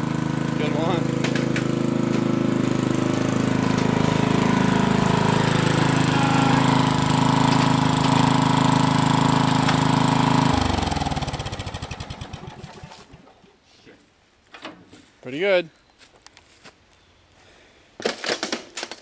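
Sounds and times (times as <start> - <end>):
lawn tractor engine running: 0.0 - 13.5.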